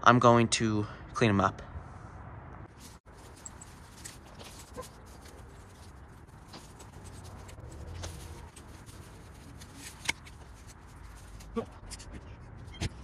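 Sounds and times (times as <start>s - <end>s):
dry leaves rustling and crackling: 2.7s - 11.6s
pruning shears snipping: 6.4s - 11.5s.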